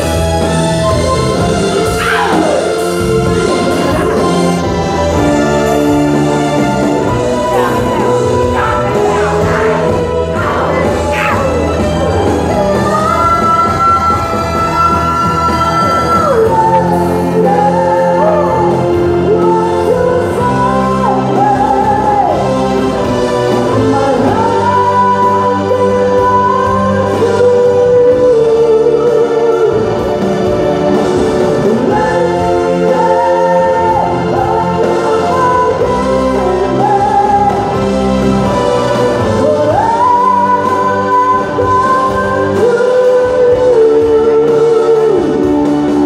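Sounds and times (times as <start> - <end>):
band with electric guitar: 0.0 - 46.0.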